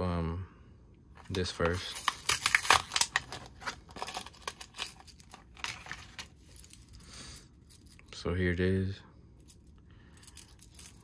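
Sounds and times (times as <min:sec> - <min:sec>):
blister pack crackling and crinkling: 0:01.2 - 0:08.1, 0:09.4 - 0:11.0.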